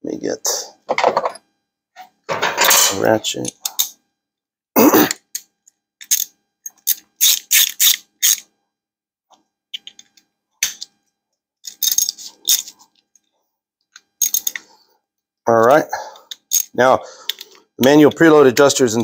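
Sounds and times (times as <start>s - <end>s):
metal clatter: 2.3s - 3.1s.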